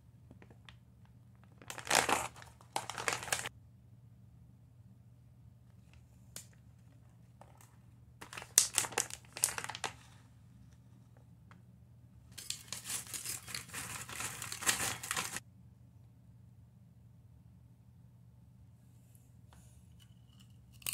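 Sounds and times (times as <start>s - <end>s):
foil chip bag crinkling: 0.4s - 3.5s, 7.4s - 10.2s, 12.4s - 15.4s.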